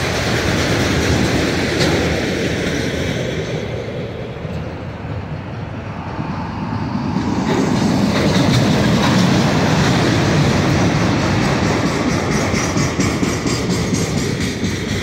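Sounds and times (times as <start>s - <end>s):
freight train wheels clickety-clack: 0.0s - 15.0s.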